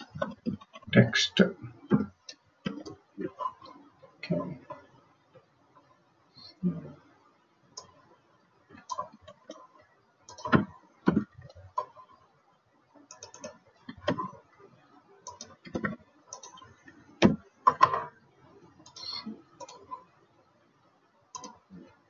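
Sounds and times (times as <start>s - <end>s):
computer keyboard typing: 8.8s - 12.1s, 13.1s - 14.4s, 15.2s - 18.1s, 18.8s - 20.1s, 21.3s - 21.9s.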